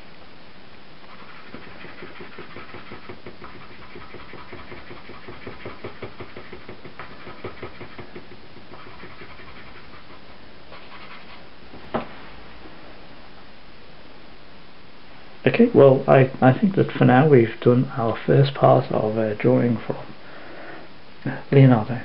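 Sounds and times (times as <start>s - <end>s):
pastel rubbing on paper: 1.1s - 11.5s.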